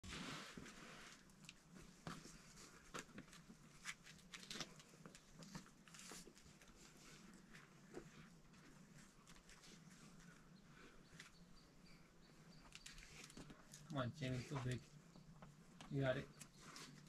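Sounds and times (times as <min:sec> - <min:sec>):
climbing shoes and hands on rock: 0:00.6 - 0:10.4, 0:12.6 - 0:14.8.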